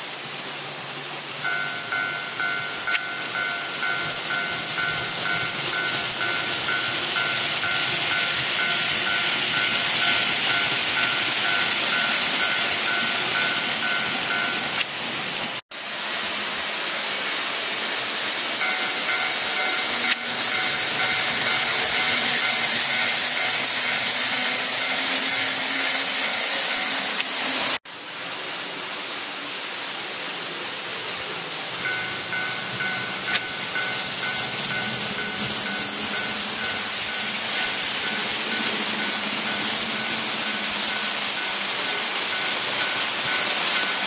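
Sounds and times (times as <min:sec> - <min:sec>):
model trains running on track: 0:00.0 - 0:44.0
level crossing warning bell: 0:01.4 - 0:14.9, 0:18.6 - 0:27.8, 0:31.7 - 0:44.0.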